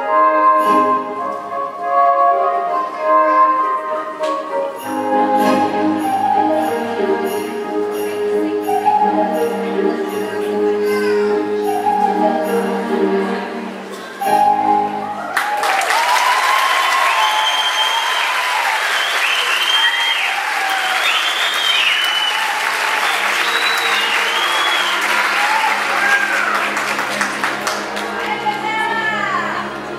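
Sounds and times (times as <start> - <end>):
music: 0.0 - 16.8, 21.1 - 29.9
people cheering: 15.0 - 29.6
audience applauding: 15.2 - 28.8.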